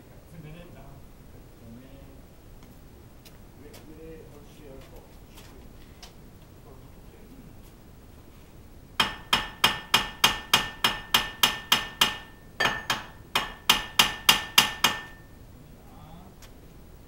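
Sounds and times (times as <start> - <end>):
hammer striking metal: 9.0 - 15.3.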